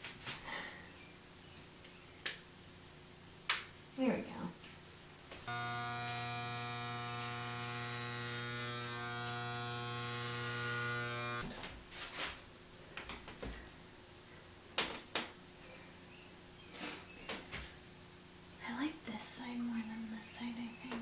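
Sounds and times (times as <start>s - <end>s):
electric hair clippers buzzing: 5.4s - 11.5s.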